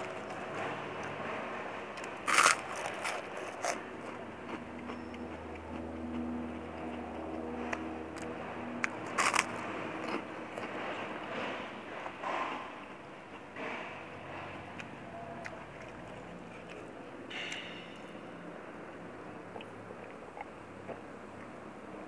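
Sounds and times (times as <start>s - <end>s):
low hum: 0.0s - 22.0s
crunches of biting a cracker: 2.0s - 10.9s, 14.7s - 18.0s
soft chewing: 2.0s - 12.1s, 14.3s - 18.1s, 19.2s - 21.6s.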